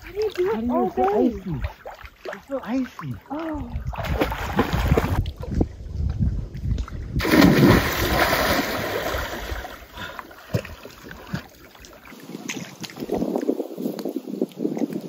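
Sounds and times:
water splashing on rocky shore: 0.0s - 5.3s, 7.2s - 13.7s.

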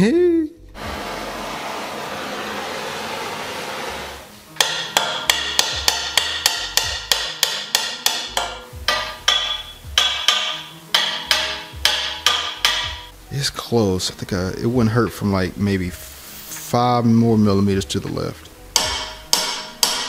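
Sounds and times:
propane torch hissing: 0.8s - 4.6s, 15.9s - 16.7s
hammer striking metal: 4.6s - 13.1s, 18.7s - 20.0s.

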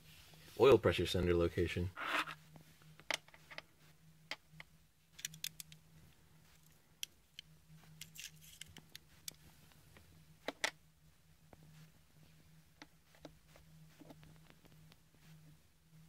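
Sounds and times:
faint low hum: 0.0s - 16.0s
caliper clicks and scrapes: 5.2s - 5.8s.

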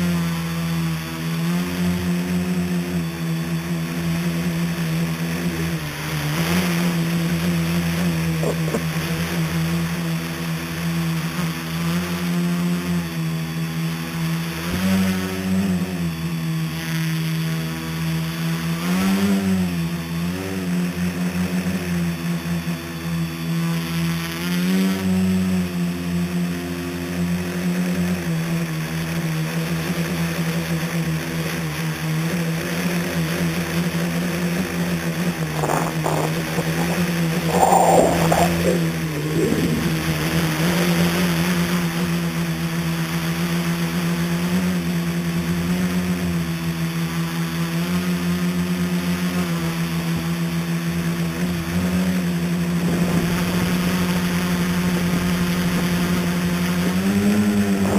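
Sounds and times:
drone propellers buzzing: 35.3s - 41.2s.

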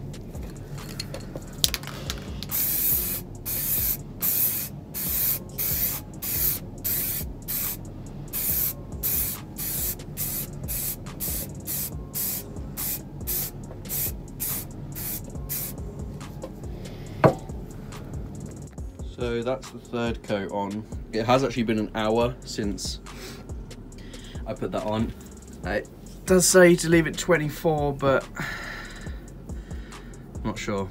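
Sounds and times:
spray paint can hissing: 1.6s - 15.8s.

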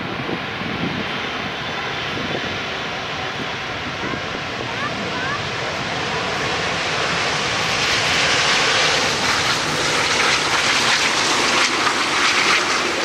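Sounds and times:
jet engines in reverse thrust: 0.0s - 13.0s
tyres hissing on wet runway: 3.0s - 13.0s.

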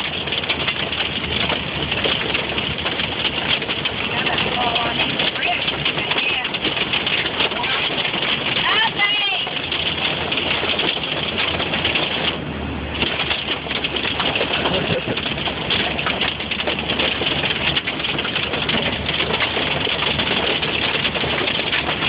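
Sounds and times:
hail pelting car roof: 0.0s - 22.0s.

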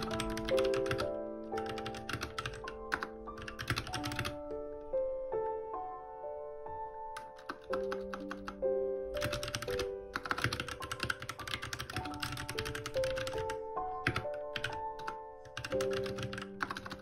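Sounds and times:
soft piano music: 0.0s - 17.0s.

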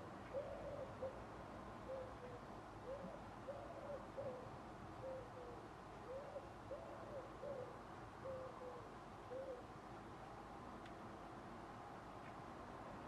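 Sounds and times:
steady background hiss: 0.0s - 13.0s
pigeon cooing: 0.3s - 1.2s, 1.9s - 9.6s.

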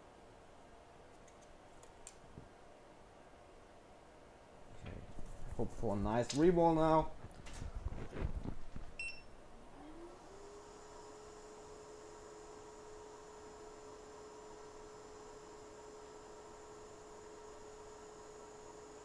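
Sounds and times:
hot air blower whine and hum: 9.4s - 19.0s.

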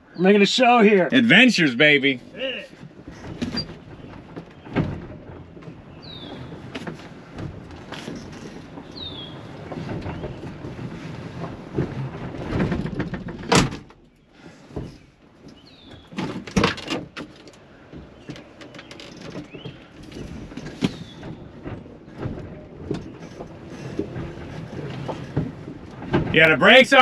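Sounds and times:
truck body rattling and clunking: 0.6s - 27.0s
birds chirping: 5.8s - 6.6s, 8.8s - 10.4s, 14.2s - 16.2s, 17.8s - 21.6s.

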